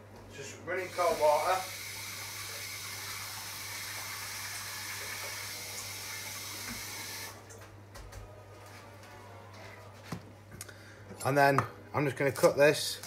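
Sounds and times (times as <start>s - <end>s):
water running from tap: 0.7s - 7.5s.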